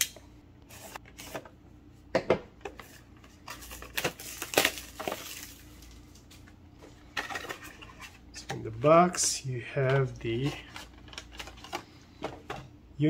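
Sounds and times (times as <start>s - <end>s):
shrink wrap crinkling and tearing: 3.4s - 6.5s.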